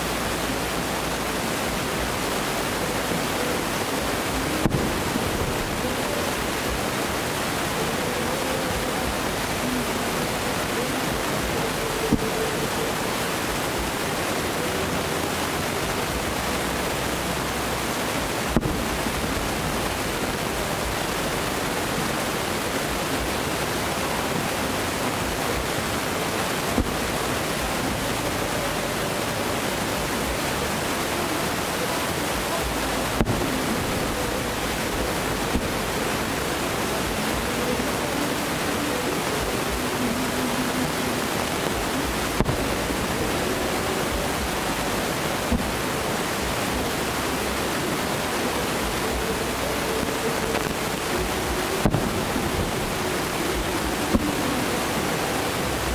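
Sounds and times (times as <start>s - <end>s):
distant fireworks rushing noise: 2.1s - 7.6s, 50.0s - 55.9s.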